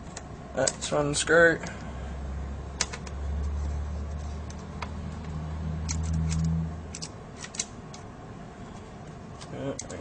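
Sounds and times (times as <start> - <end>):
low steady hum: 0.0 - 10.0
screwdriver clicks and scrapes: 2.8 - 8.0.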